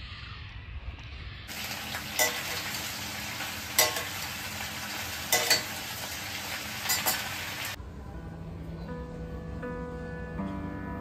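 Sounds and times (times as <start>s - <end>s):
food sizzling in a pan: 1.5s - 7.8s
metal spatula clinking on pan: 2.1s - 2.7s, 3.8s - 4.2s, 5.3s - 5.9s, 6.8s - 7.3s.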